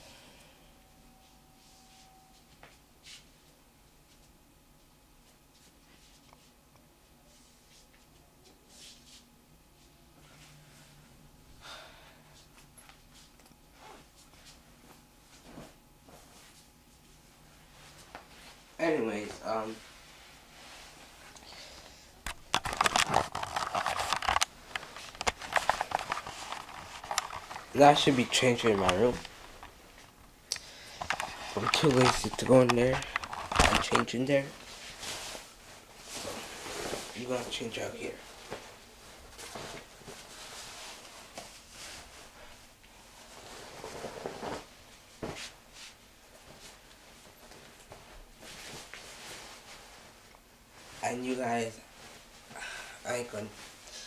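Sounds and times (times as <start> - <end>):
cloth rustling and scraping: 13.0 - 21.3, 22.3 - 30.2, 30.9 - 52.5.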